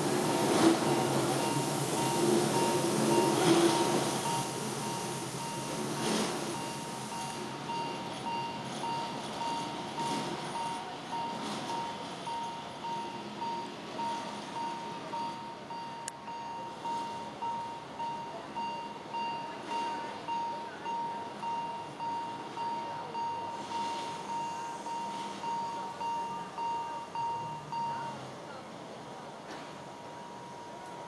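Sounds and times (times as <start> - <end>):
steam train running slowly: 0.0 - 31.0
level crossing bell dinging: 10.5 - 28.2.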